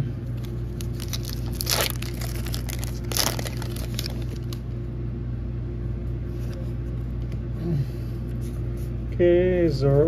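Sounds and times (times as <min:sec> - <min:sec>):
low hum: 0:00.0 - 0:10.0
foil wrapper crinkling: 0:00.4 - 0:04.6.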